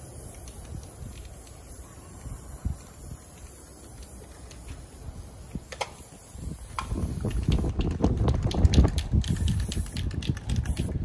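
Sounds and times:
wind buffeting microphone: 0.2s - 11.0s
sharp clicks and taps: 6.7s - 11.0s.

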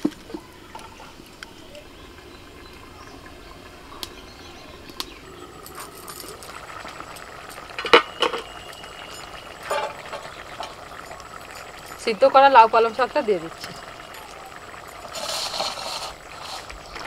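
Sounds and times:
curry bubbling in pan: 0.0s - 17.0s
metal lid clinking down: 9.2s - 12.0s.

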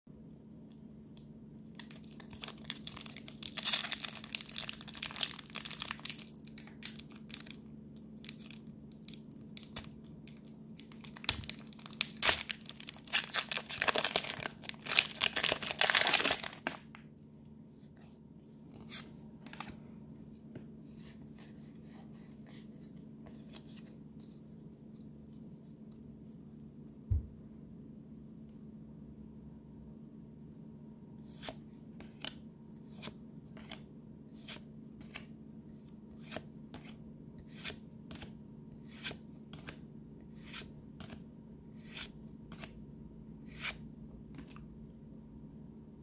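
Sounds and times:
foil wrapper crinkling: 1.8s - 7.6s, 8.2s - 16.9s
foil wrapper tearing: 1.8s - 7.6s, 8.2s - 16.8s.

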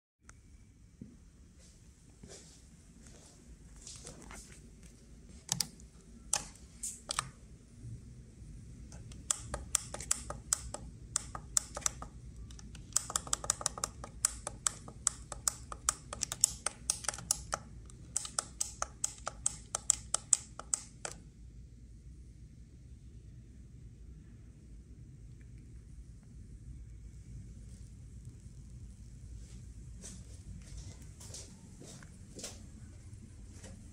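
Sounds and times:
low steady hum: 0.2s - 33.9s
controller buttons clicking: 5.4s - 7.3s, 8.9s - 21.2s.

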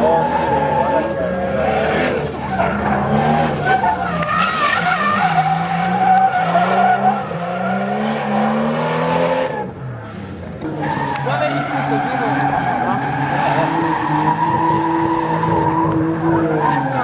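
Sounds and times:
tyres squealing: 0.0s - 8.1s
car engine revving high: 0.0s - 17.0s.

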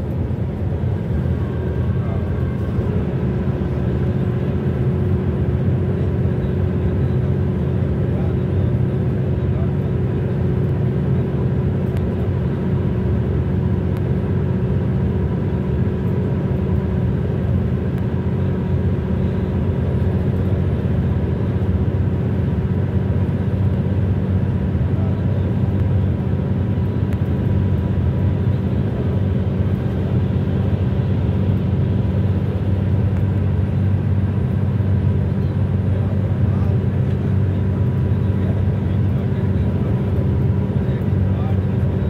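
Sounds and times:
car road noise from inside: 0.0s - 42.0s.

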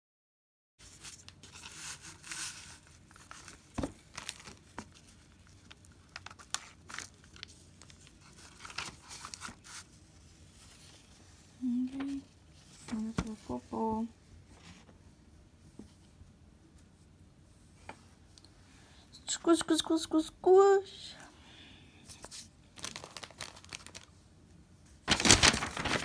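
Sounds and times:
paper crinkling and rustling: 0.8s - 13.6s, 22.1s - 24.2s, 24.9s - 26.0s.

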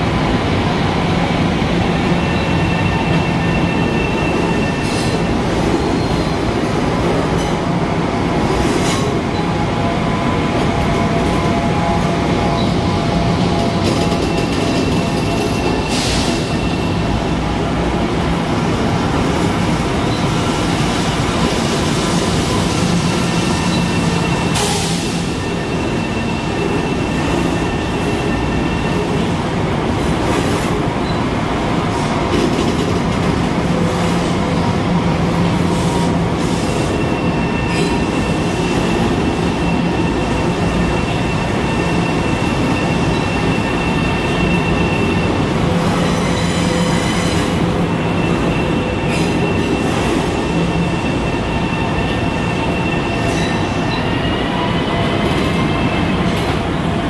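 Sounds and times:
train wheels rumbling on rails: 0.0s - 57.0s
high wheel squeal: 36.0s - 56.5s.

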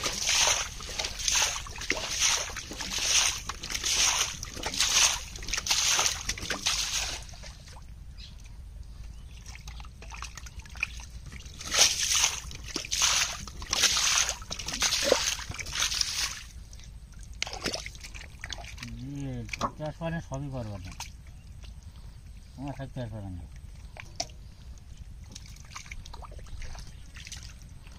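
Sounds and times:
hands splashing in muddy water: 0.0s - 7.8s, 9.3s - 16.6s, 17.3s - 19.6s.

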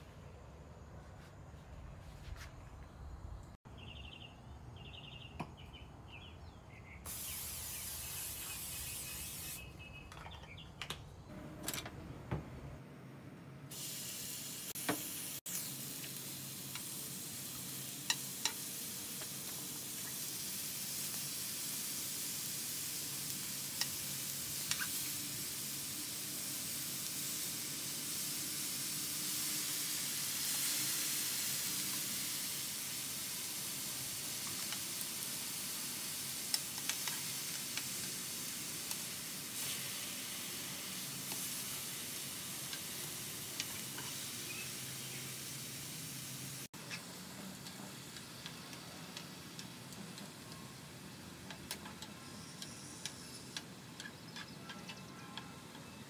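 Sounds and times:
meat sizzling on a griddle: 7.1s - 9.6s, 13.7s - 53.8s
wooden tongs clicking on pan: 36.5s - 38.2s.

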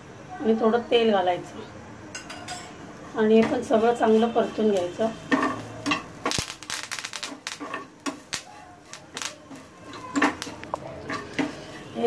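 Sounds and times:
metal spatula scraping a pan: 4.1s - 6.2s, 9.5s - 12.0s.

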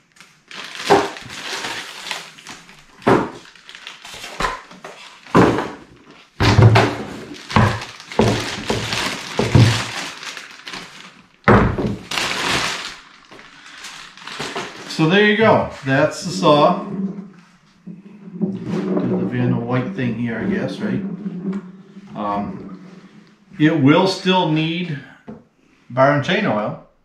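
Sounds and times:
styrofoam packing handled: 0.0s - 15.1s
plastic bag rustling: 0.0s - 17.4s.

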